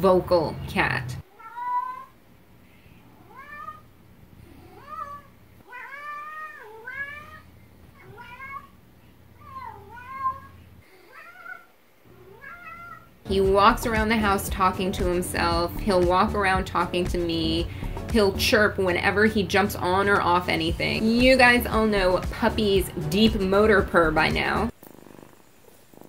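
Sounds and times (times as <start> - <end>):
cat meowing: 1.2 - 2.2, 3.2 - 3.9, 4.6 - 8.8, 9.4 - 13.1.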